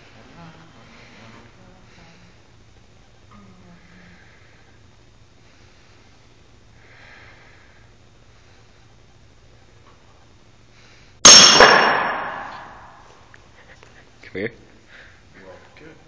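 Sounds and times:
low room hum: 0.0 - 16.0
person breathing heavily: 3.5 - 8.9, 14.9 - 15.4.

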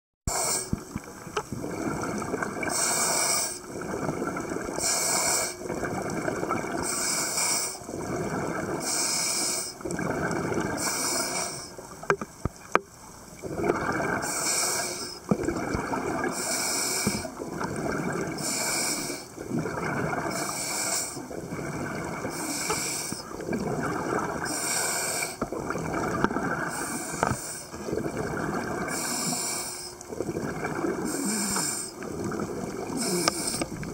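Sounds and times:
diver breathing through regulator: 0.3 - 0.8, 2.6 - 3.7, 4.8 - 5.7, 6.8 - 7.9, 8.8 - 9.8, 10.7 - 11.8, 14.2 - 15.2, 16.3 - 17.4, 18.3 - 19.4, 20.1 - 21.3, 22.2 - 23.4, 24.4 - 25.4, 26.6 - 27.8, 28.7 - 30.1, 31.0 - 32.1, 32.9 - 33.9
exhaled bubbles gurgling: 0.3 - 33.9.

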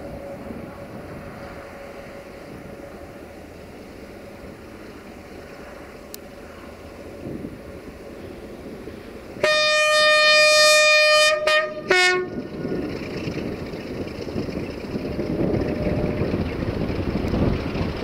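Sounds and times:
rumble of locomotive and wagons: 0.0 - 18.0
locomotive horn blasts: 9.4 - 12.4.

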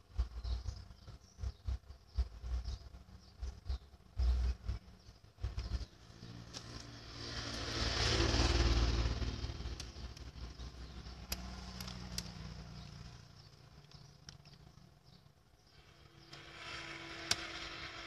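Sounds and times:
motor vehicle passing: 4.2 - 14.8, 15.7 - 18.0
plastic clicks: 11.2 - 12.4.

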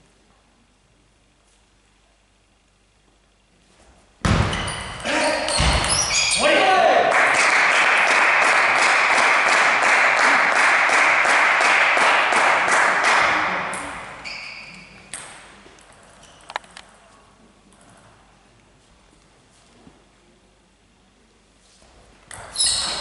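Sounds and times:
table tennis ball bouncing: 4.3 - 6.2, 14.8 - 15.8, 22.3 - 22.6
spectators applauding: 7.0 - 13.7.

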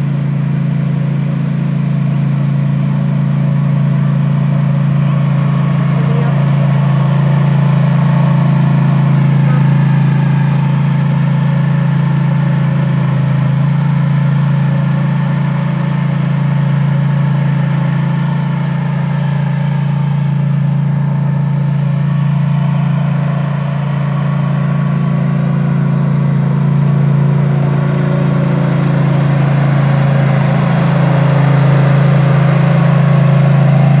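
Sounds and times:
mower engine humming: 0.0 - 34.0.

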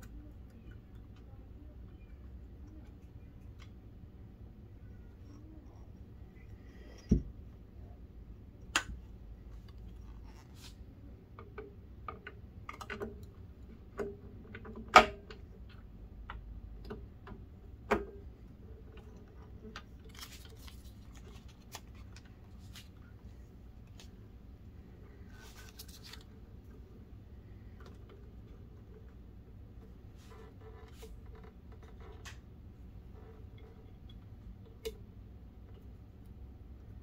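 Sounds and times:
clicks and taps of plastic parts: 11.3 - 22.3.

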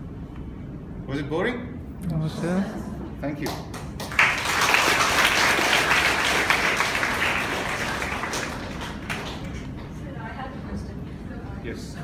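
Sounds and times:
audience applauding: 3.8 - 10.0.

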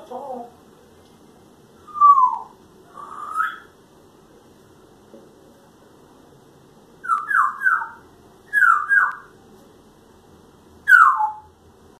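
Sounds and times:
parrot whistling falling notes: 1.9 - 3.7.

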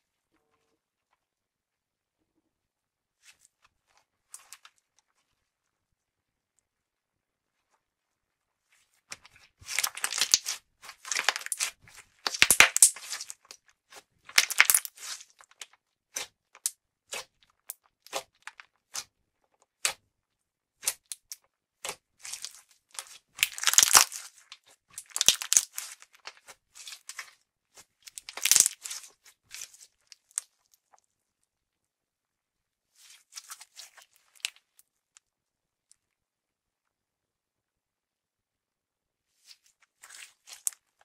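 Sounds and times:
slime squished by hands crackling: 8.8 - 20.0, 20.8 - 30.9, 33.0 - 34.8.

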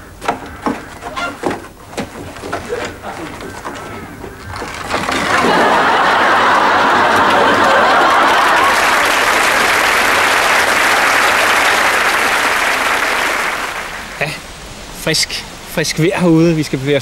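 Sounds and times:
audience applause: 2.5 - 14.4.

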